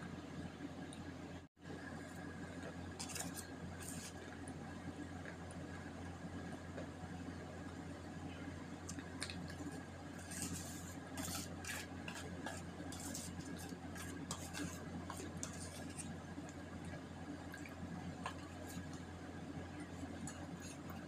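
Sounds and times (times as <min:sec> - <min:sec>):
spoon scraping steel bowl: 0:10.2 - 0:16.2.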